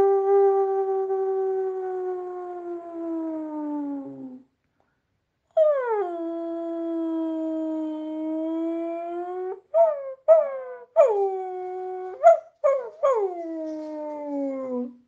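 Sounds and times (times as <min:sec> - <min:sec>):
person imitating dog howl: 0:00.0 - 0:04.4.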